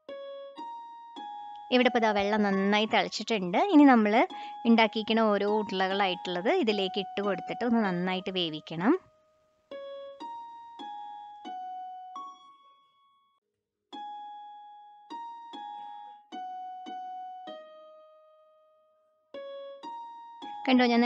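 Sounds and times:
slow piano melody: 0.0s - 1.7s, 9.7s - 12.6s, 14.0s - 20.7s.

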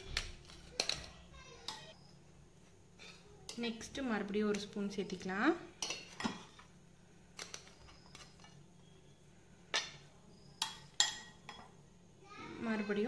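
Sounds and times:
faint steady hum: 0.0s - 13.0s
spoon clinking on metal: 10.6s - 11.7s.

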